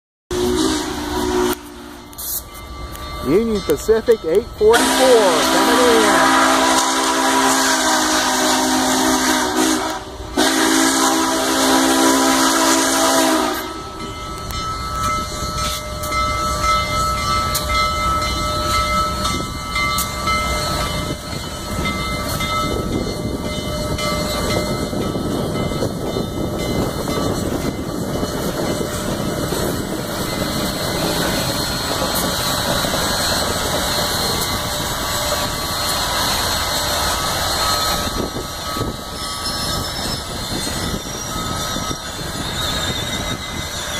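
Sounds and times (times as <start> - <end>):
steam whistle blowing: 0.3 - 2.5, 4.7 - 14.0
steam locomotive rolling past: 0.3 - 43.9.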